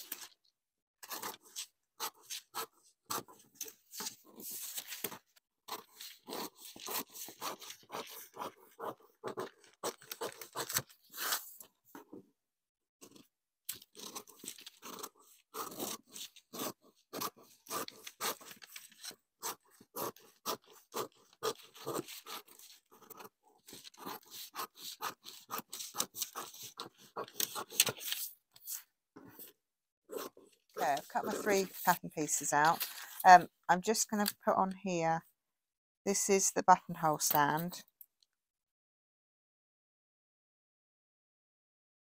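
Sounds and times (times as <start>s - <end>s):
scissors snipping paper: 1.0s - 11.4s, 13.1s - 28.8s.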